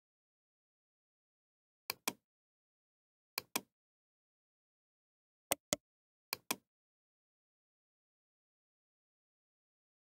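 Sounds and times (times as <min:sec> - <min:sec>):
computer mouse clicks: 0:03.4 - 0:03.7, 0:05.5 - 0:06.7.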